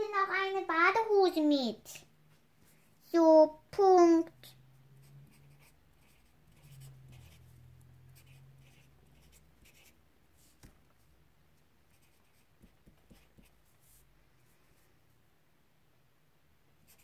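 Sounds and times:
pen scratching on paper: 0:05.0 - 0:10.7, 0:11.9 - 0:14.0.

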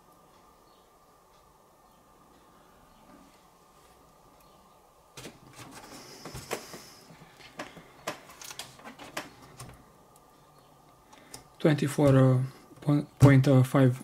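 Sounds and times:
plastic and cardboard rustling: 0:05.2 - 0:09.8.

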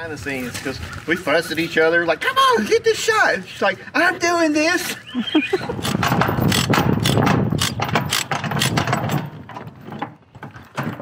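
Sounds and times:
chain binder clicking: 0:05.8 - 0:10.0.

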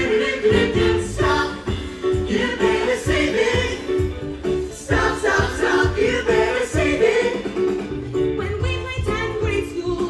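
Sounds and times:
group singing in harmony: 0:00.0 - 0:07.9
amplified backing music: 0:00.0 - 0:10.0.

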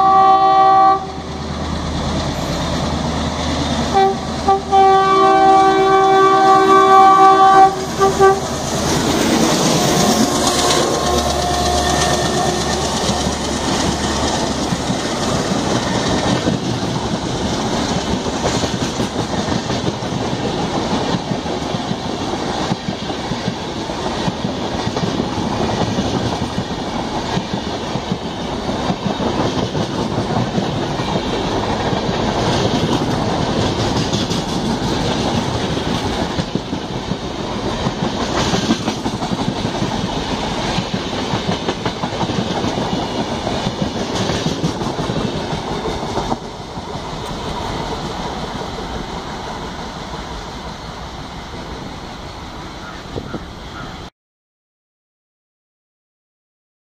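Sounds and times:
train wheels rushing on rail: 0:00.0 - 0:54.0
wheels clicking over rail joints: 0:08.6 - 0:50.4.

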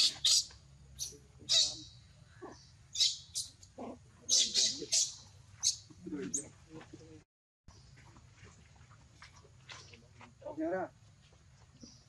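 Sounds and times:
baby monkey squealing: 0:00.0 - 0:01.9, 0:02.9 - 0:03.5, 0:04.3 - 0:05.8
baby monkey soft low calls: 0:02.4 - 0:06.4.

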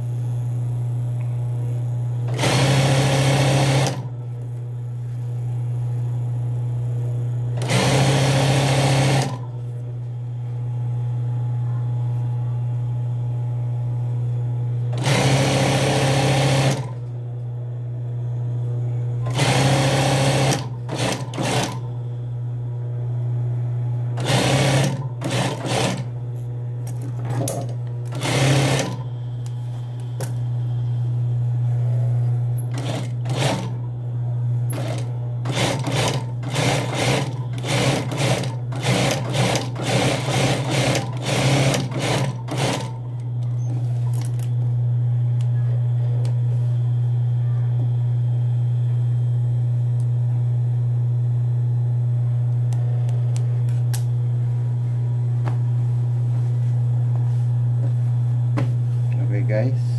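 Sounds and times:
steady low hum: 0:00.0 - 0:07.7, 0:09.1 - 0:59.9
sewing machine stitching: 0:02.3 - 0:04.1, 0:07.6 - 0:09.5, 0:14.9 - 0:17.0, 0:19.2 - 0:21.9, 0:24.2 - 0:26.1, 0:27.2 - 0:29.0, 0:32.7 - 0:33.8, 0:34.7 - 0:43.0.

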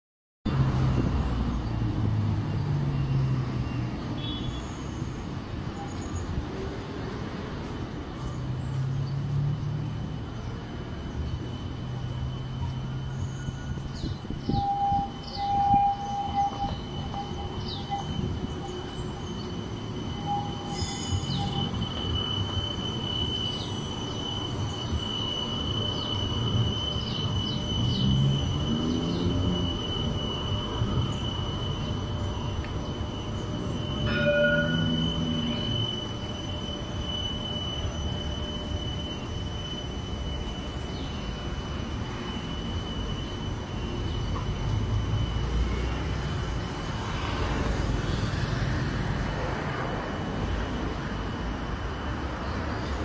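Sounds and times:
street traffic rumble: 0:00.5 - 0:53.0
steady high-pitched tone: 0:06.3 - 0:53.0
faint high tones: 0:30.0 - 0:41.1.

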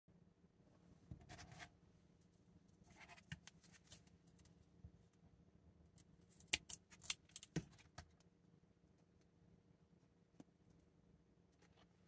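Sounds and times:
faint steady hum: 0:00.1 - 0:12.0.

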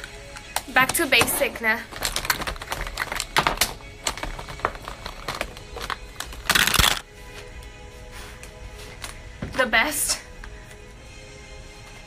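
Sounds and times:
objects clicking and tapping: 0:00.0 - 0:07.0.

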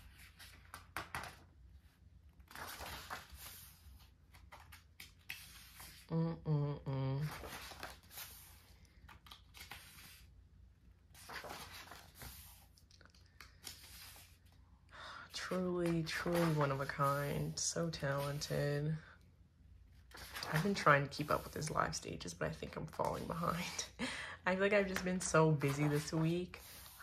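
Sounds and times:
book pages turning: 0:00.0 - 0:06.1, 0:07.2 - 0:14.6, 0:15.3 - 0:18.5, 0:19.9 - 0:22.0, 0:24.8 - 0:27.0
person humming: 0:06.1 - 0:07.3.

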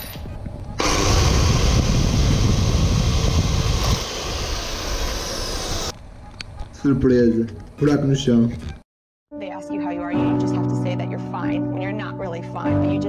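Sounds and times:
electric drill running: 0:00.8 - 0:05.9.

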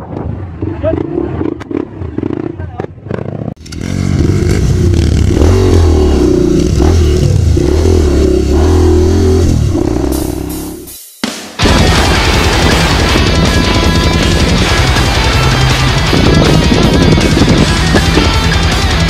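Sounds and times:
music with stepping bass line: 0:08.0 - 0:11.0, 0:11.6 - 0:19.0.

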